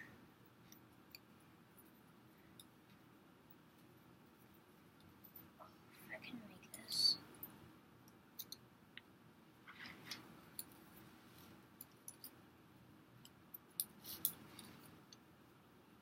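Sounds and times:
wooden sticks clicking and scraping: 0:13.2 - 0:15.2.

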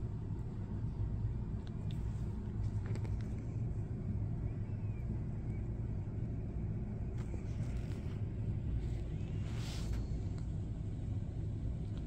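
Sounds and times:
steady low rumble: 0:00.0 - 0:12.0
cat gnawing on a stick: 0:01.5 - 0:03.6.

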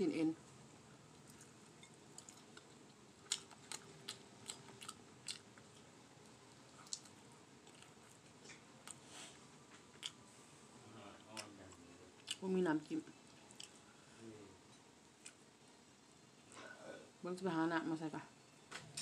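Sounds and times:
person chewing wet mouth clicks: 0:02.2 - 0:05.9, 0:06.8 - 0:09.0, 0:09.9 - 0:10.2, 0:12.2 - 0:12.4, 0:13.5 - 0:13.8, 0:15.2 - 0:15.4.

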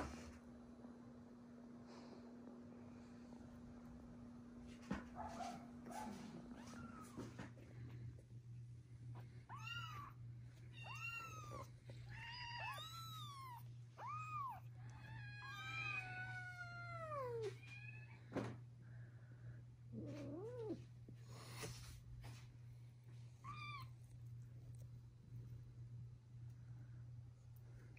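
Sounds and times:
kittens meowing: 0:09.4 - 0:18.2, 0:19.9 - 0:20.8, 0:23.4 - 0:24.0
low hum: 0:18.2 - 0:27.9.

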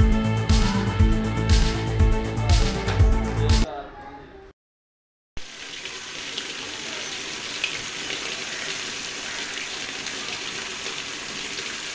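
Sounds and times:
water gushing from pipe: 0:05.4 - 0:11.9.

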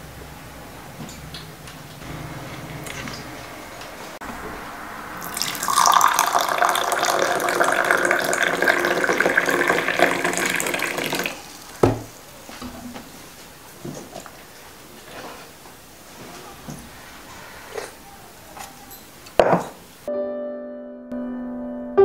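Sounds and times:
tea pouring into a cup: 0:05.2 - 0:11.4.

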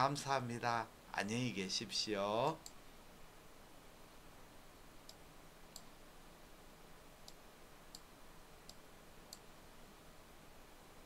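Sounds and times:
computer mouse clicks: 0:08.7 - 0:09.5.

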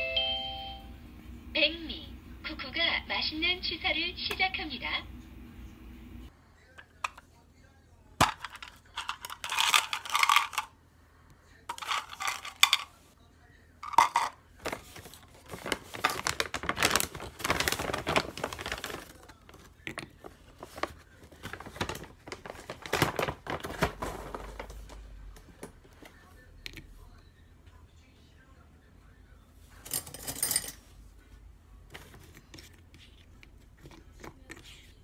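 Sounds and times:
pieces dropping into plastic cup: 0:08.2 - 0:10.7, 0:11.7 - 0:12.9, 0:13.8 - 0:14.8
plastic packaging crinkling: 0:14.0 - 0:25.0.

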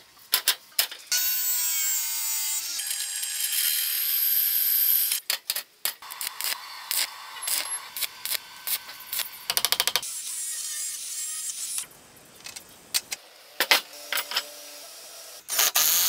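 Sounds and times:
arc welder crackling: 0:05.9 - 0:10.1, 0:15.4 - 0:16.0.

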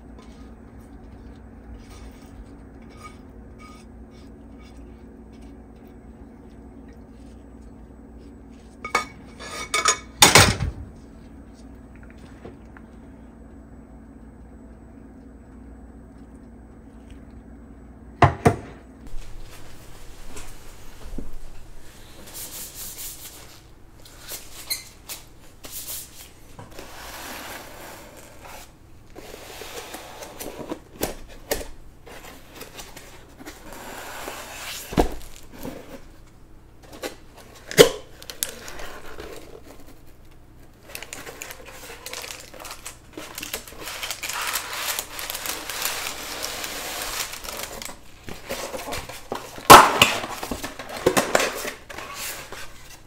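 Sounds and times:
packaging rustling: 0:38.2 - 0:53.0.

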